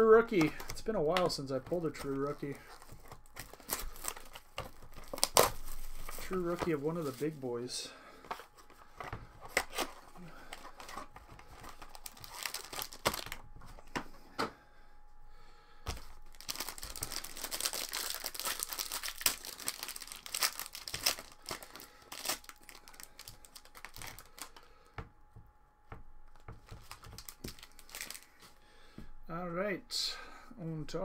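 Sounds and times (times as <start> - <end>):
cards rustling and clicking: 0.0 - 7.4, 8.2 - 14.1, 15.8 - 25.0, 26.3 - 28.5
foil pack tearing and crinkling: 0.0 - 7.4, 8.8 - 13.4, 15.9 - 24.9, 26.7 - 28.4.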